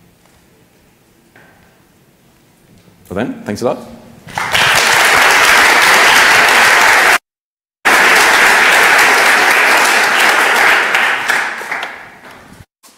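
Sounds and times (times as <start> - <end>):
audience applauding: 4.3 - 7.2, 7.8 - 12.3.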